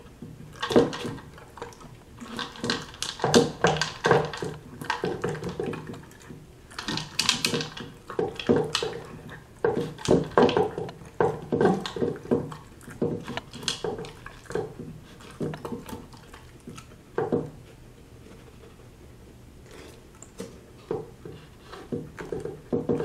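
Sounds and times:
dog crunching kibble: 0.5 - 17.0.

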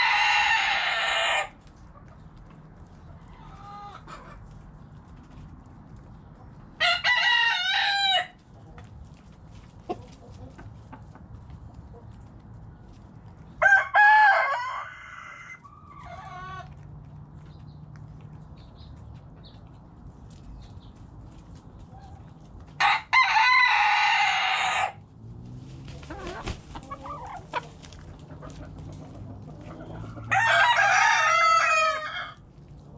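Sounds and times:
rooster crowing: 0.0 - 1.5, 6.8 - 8.4, 13.6 - 16.3, 22.8 - 25.0, 30.2 - 32.4
hen clucking: 3.0 - 4.7, 9.7 - 12.4, 25.8 - 30.6.

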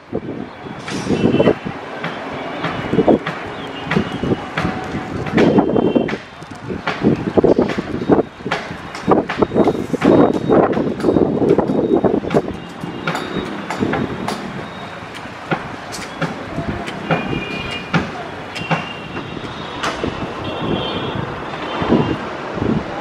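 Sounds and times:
outdoor background noise: 0.0 - 23.0
sharp clicks and knocks: 2.0 - 20.1.

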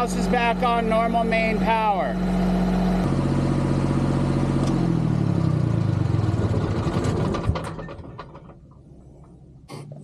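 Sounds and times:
diesel generator winding down: 0.0 - 10.0
engine knock: 5.8 - 8.8.

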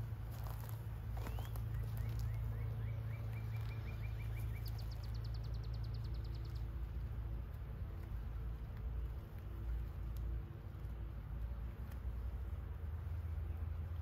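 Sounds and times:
bird singing with trill: 1.2 - 7.0.

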